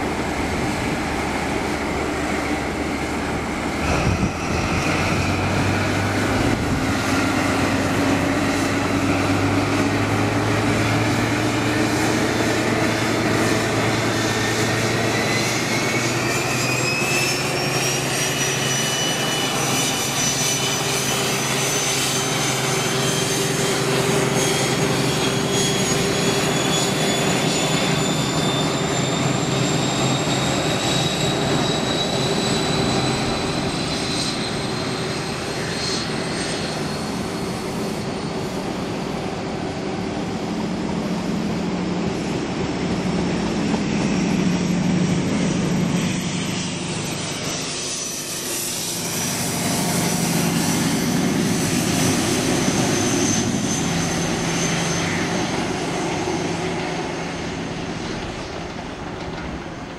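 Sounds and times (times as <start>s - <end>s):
diesel locomotive engine working hard: 0.0s - 59.9s
turbocharger whine: 0.0s - 59.9s.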